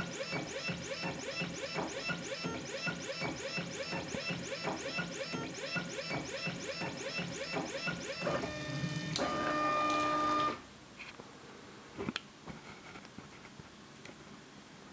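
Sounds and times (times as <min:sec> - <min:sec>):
stepper motors whining: 0:00.0 - 0:10.6.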